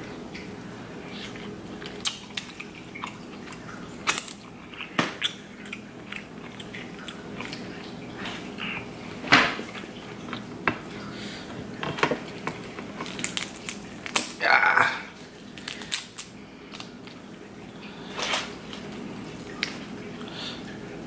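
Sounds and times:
wet chewing and mouth noises: 0:00.3 - 0:20.7
crab shell cracking: 0:12.4 - 0:14.4, 0:15.5 - 0:17.3.

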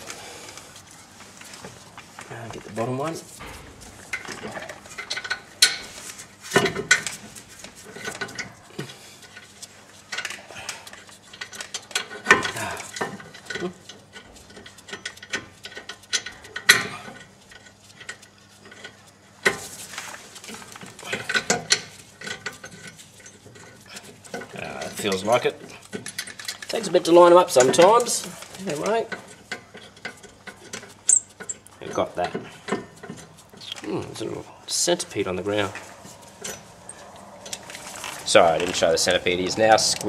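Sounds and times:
metallic clicks and knocks: 0:02.2 - 0:19.7, 0:20.5 - 0:33.8.

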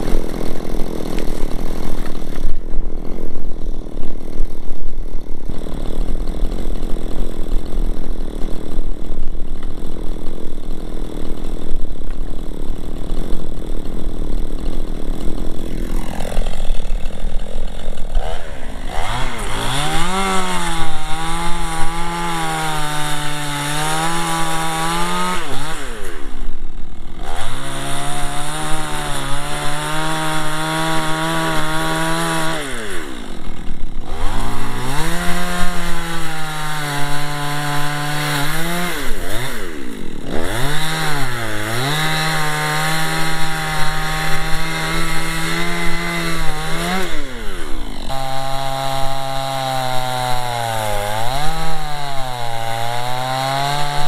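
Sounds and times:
chainsaw revving and cutting wood: 0:00.0 - 0:54.0.

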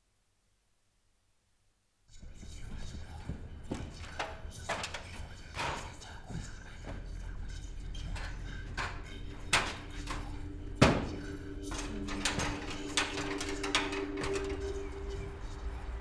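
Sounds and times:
ladder knocking and clanking: 0:08.1 - 0:10.2, 0:10.8 - 0:14.8
low two-note drone: 0:09.1 - 0:16.0.

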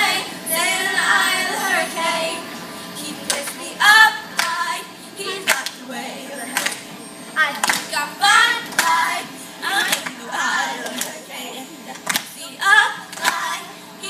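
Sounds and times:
children's choir singing: 0:00.0 - 0:13.8
sharp hand claps: 0:05.5 - 0:05.8, 0:06.6 - 0:06.8, 0:07.6 - 0:07.9, 0:12.0 - 0:12.3, 0:13.1 - 0:13.4.

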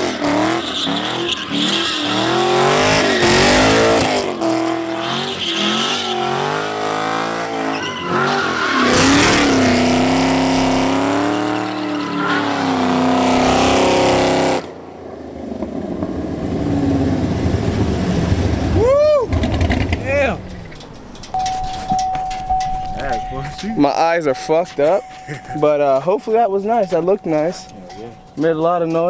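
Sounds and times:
tyres squealing: 0:00.0 - 0:14.4
car engine revving: 0:00.0 - 0:14.8, 0:15.4 - 0:28.5.

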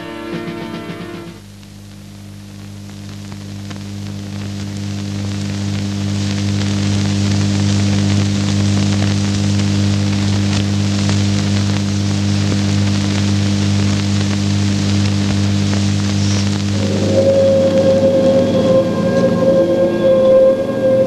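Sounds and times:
crackling rain-like hiss: 0:00.9 - 0:20.9
low electronic drone: 0:16.3 - 0:21.0.

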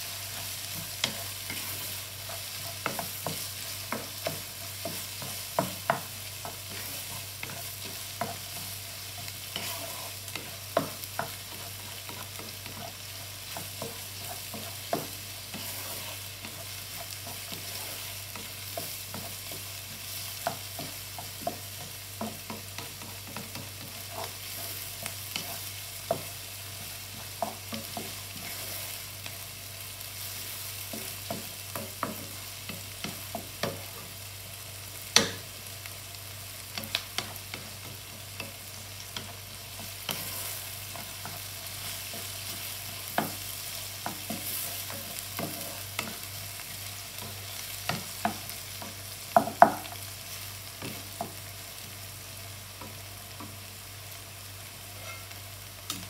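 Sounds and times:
spatula scraping a pan: 0:00.0 - 0:29.4, 0:36.8 - 0:49.9, 0:54.9 - 0:55.4
food sizzling in a pan: 0:00.0 - 0:56.0.

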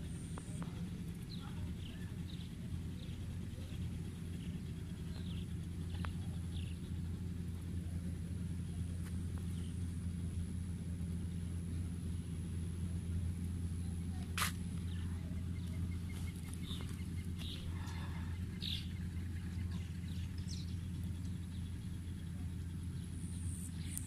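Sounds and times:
birds chirping: 0:00.0 - 0:10.3, 0:13.6 - 0:24.0
steady low rumble: 0:00.0 - 0:24.0
sharp click: 0:14.4 - 0:14.6.

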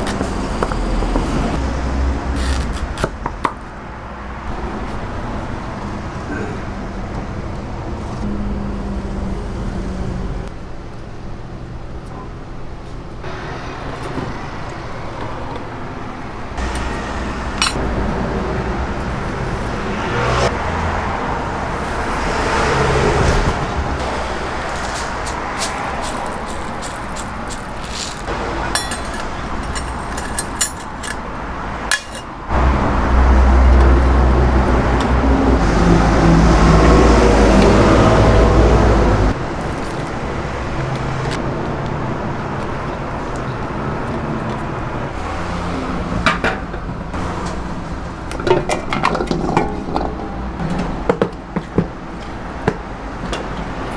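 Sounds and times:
road traffic noise: 0:00.0 - 0:53.9
plastic bag rustling: 0:24.4 - 0:28.3
dried seafood crinkling: 0:24.7 - 0:28.3.

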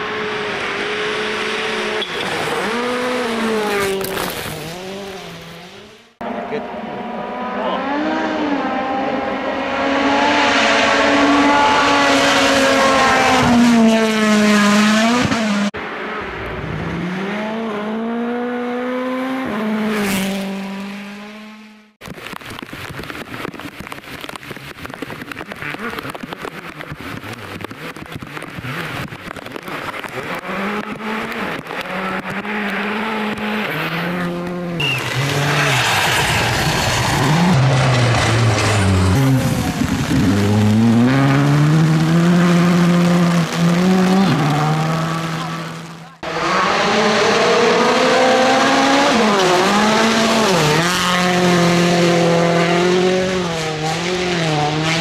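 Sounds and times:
car revving with gear changes: 0:00.0 - 0:22.0, 0:24.2 - 0:35.8, 0:37.0 - 0:55.0
dense crackling noise: 0:22.0 - 0:33.5, 0:34.8 - 0:42.3
rally car engine revving past: 0:30.2 - 0:55.0.

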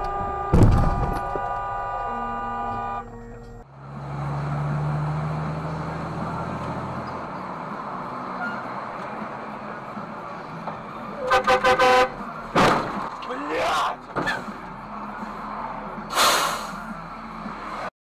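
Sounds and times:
car horn short toots: 0:00.0 - 0:03.0, 0:11.2 - 0:12.2
car on wet road: 0:03.7 - 0:10.6.

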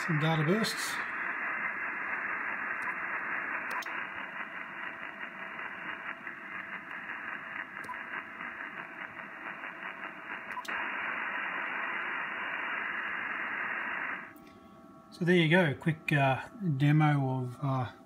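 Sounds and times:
radio interference hiss: 0:00.0 - 0:14.3.

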